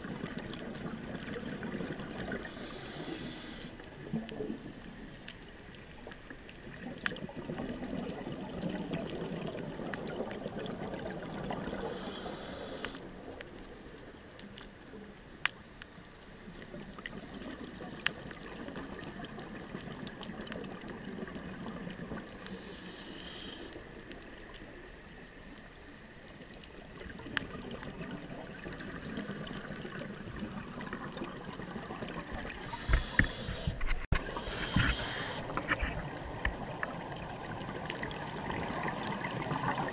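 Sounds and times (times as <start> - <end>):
scuba regulator breathing: 2.4 - 3.8, 11.8 - 13.0, 22.4 - 23.8, 32.5 - 36.0
exhaled bubbles bursting: 6.8 - 11.8.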